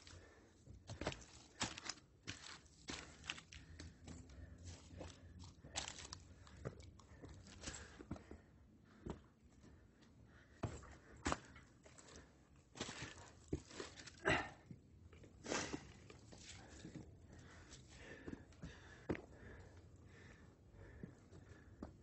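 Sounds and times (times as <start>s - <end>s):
footsteps crunching on a trail: 0.9s - 8.3s, 12.8s - 14.0s.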